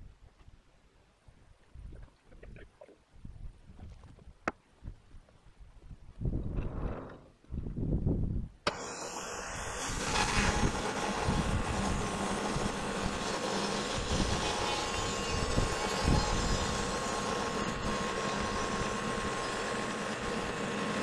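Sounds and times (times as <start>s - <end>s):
bandsaw mill cutting log: 8.7s - 21.0s.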